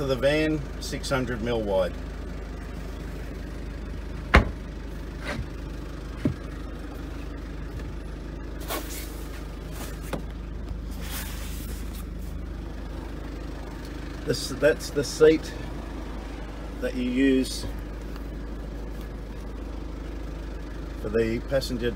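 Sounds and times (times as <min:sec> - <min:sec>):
steady low hum: 0:00.0 - 0:21.9
seat lid thump: 0:04.3 - 0:04.6, 0:06.2 - 0:06.5.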